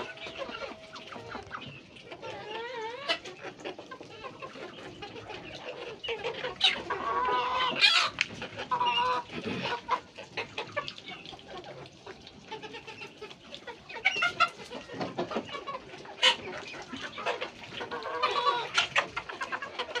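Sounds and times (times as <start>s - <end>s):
chickens clucking: 0.0s - 20.0s.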